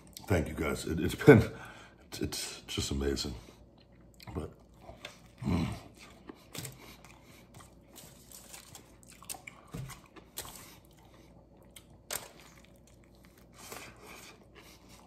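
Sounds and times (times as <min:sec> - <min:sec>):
man chewing food: 0:03.4 - 0:15.0.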